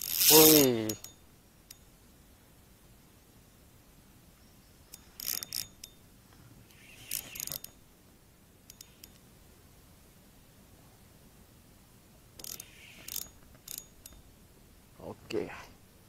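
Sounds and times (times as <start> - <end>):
fishing reel ratcheting: 0.0 - 1.2, 5.0 - 5.9, 6.7 - 7.8, 12.4 - 14.2.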